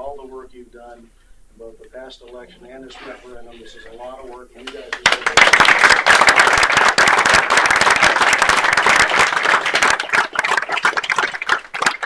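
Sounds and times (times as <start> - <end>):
people applauding: 4.6 - 12.0.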